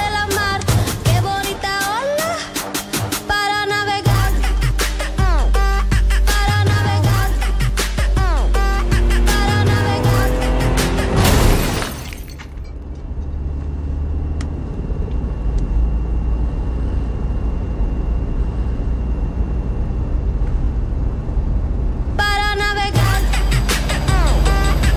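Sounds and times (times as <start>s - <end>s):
music: 0.0s - 11.8s, 22.2s - 24.9s
minivan driving rumble: 0.0s - 24.9s.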